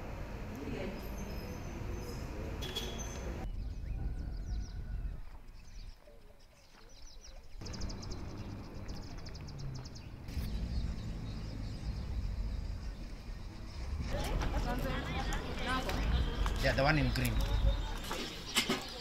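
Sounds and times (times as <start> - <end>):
small birds chirping: 0.8 - 19.0
low rumble: 7.6 - 18.0.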